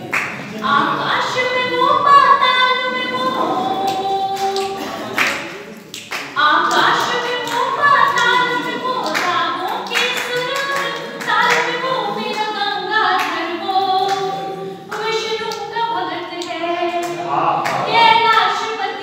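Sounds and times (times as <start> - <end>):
hand clapping: 0.0 - 0.5, 3.8 - 12.6
person singing long held notes: 0.0 - 5.7.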